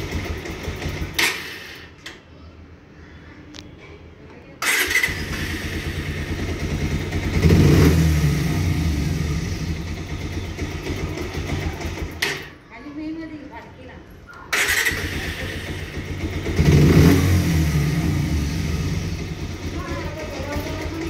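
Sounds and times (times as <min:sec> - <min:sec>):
motorcycle engine running: 0:00.0 - 0:01.2, 0:04.6 - 0:12.5, 0:14.6 - 0:21.0
electric starter cranking: 0:00.0 - 0:02.1, 0:04.6 - 0:07.8, 0:14.5 - 0:17.5.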